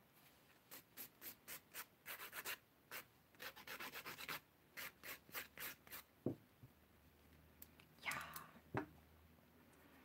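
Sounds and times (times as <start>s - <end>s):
nail file rasping on nails: 0.7s - 6.1s.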